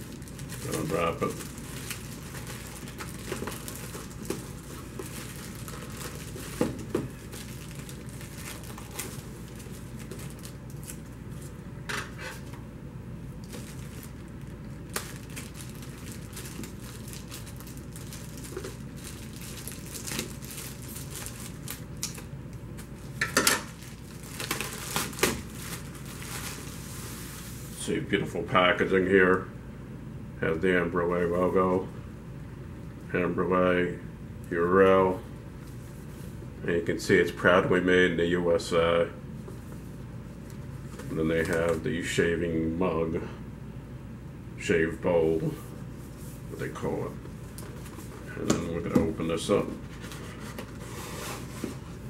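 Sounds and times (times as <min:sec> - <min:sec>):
plastic shrink wrap crinkling: 0:00.0 - 0:11.5, 0:13.4 - 0:27.6.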